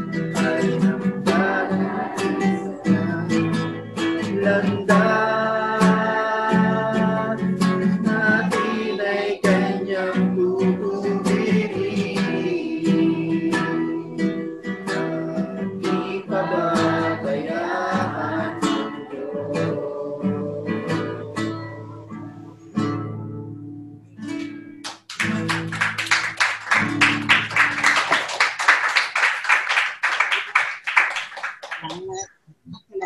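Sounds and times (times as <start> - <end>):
strummed acoustic guitar: 0.0 - 27.9
person singing worship song: 0.1 - 22.0
hand clapping: 24.8 - 32.3.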